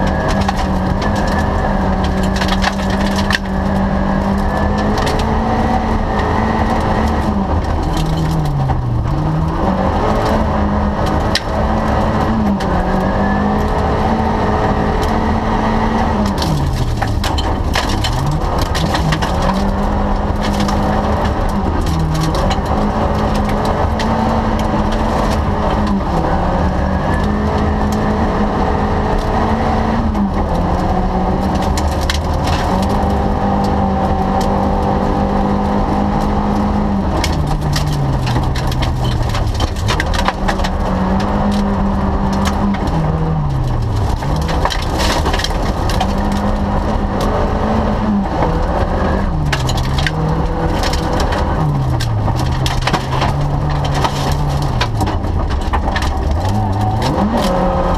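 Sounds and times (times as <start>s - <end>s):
stones clattering on car underside: 0.0s - 5.3s, 16.2s - 26.1s, 30.6s - 34.6s, 37.1s - 47.6s, 48.4s - 57.9s
car engine revving under load: 0.0s - 57.9s
gravel crunching: 0.0s - 57.9s.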